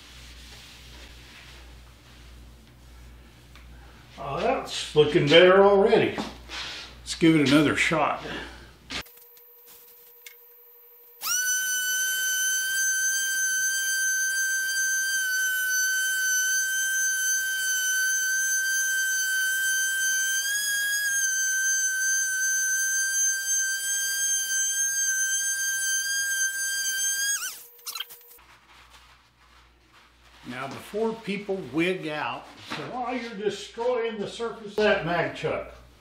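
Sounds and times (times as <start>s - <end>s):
orbital sander motor whine: 11.2s - 28.3s.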